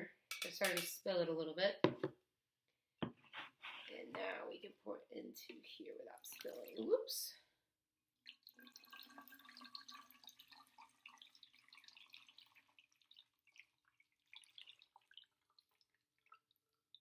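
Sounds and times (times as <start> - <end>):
water trickling into a bottle: 6.1 - 7.0, 8.2 - 17.0.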